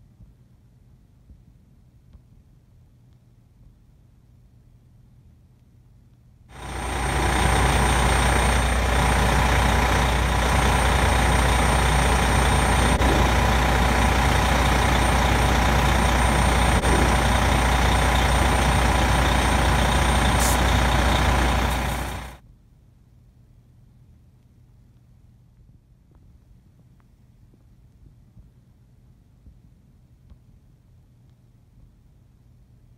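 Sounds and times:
steady whine: 6.5 - 22.4
truck engine humming: 6.5 - 22.4.

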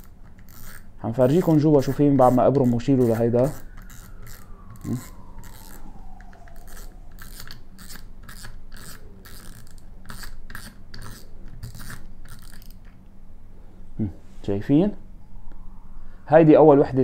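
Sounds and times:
fishing reel clicker ratcheting: 0.0 - 2.0, 2.6 - 4.4, 6.7 - 12.9.

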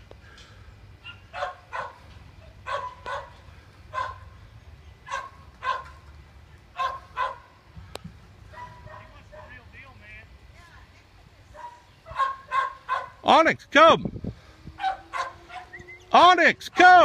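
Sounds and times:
dog barking: 1.0 - 4.3, 5.0 - 6.0, 6.8 - 7.5, 8.5 - 9.6, 11.6 - 13.2, 14.8 - 15.8.

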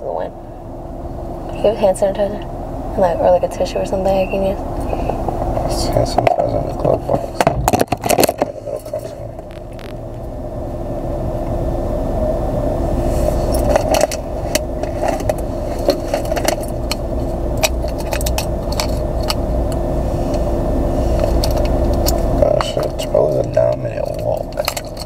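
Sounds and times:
car cabin hum: 0.0 - 25.0
small items clicking and rattling: 21.2 - 25.0.

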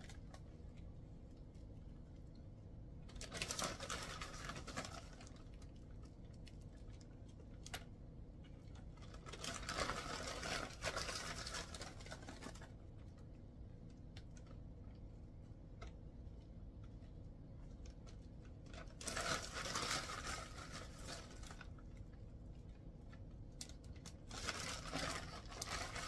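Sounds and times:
plastic bag crinkling: 3.1 - 7.8, 8.7 - 13.0, 17.6 - 26.0.

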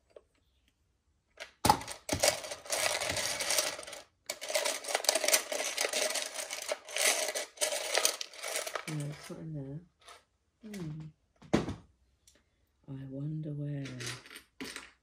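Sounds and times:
plastic bricks clattering: 1.4 - 9.3, 13.8 - 15.0.

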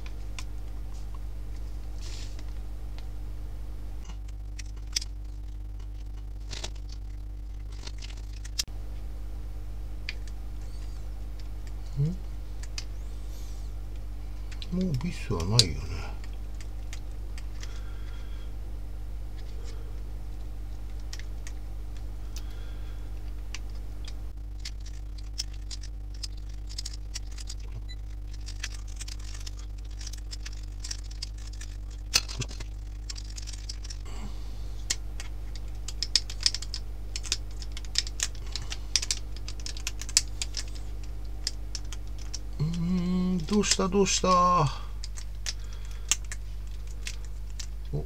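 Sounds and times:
steady low hum: 0.0 - 48.0.

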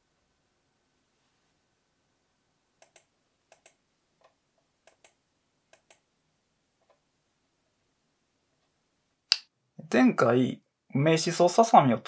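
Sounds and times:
faint computer clicks: 2.8 - 6.0.

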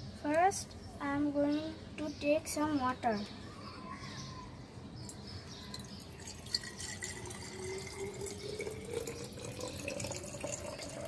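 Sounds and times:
water pouring into glass flask: 5.7 - 11.0.

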